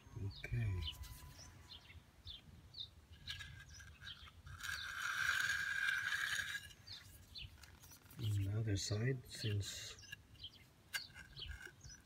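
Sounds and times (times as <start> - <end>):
birds chirping: 0.0 - 12.0
edging tool scraping concrete: 3.3 - 7.0.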